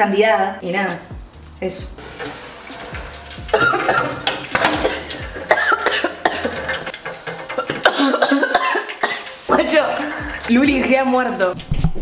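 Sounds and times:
metal utensil scraping pan: 0:02.0 - 0:12.0
girl coughing: 0:03.5 - 0:04.1, 0:04.8 - 0:06.6, 0:07.8 - 0:09.2.

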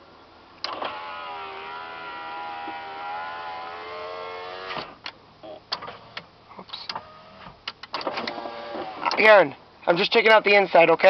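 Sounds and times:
power window motor whine: 0:00.6 - 0:05.0, 0:06.9 - 0:09.2.

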